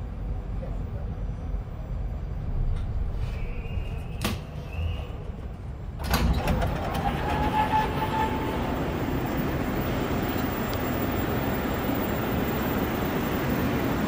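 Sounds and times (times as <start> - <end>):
train low hum: 0.0 - 14.0
sliding doors opening: 2.7 - 12.1.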